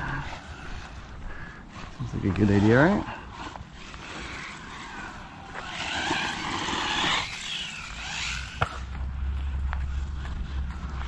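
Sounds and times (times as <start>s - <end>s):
tyres on dirt: 0.0s - 11.0s
rc car motor whine: 2.2s - 11.0s.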